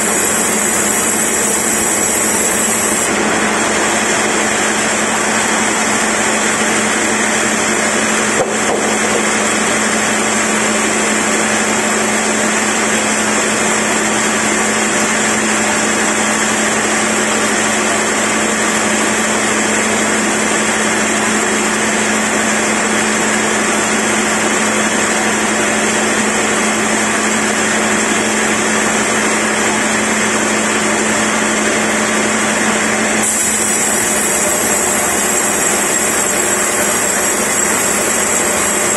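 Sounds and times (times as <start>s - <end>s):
band sawmill sawing log: 0.0s - 11.4s, 33.2s - 38.9s.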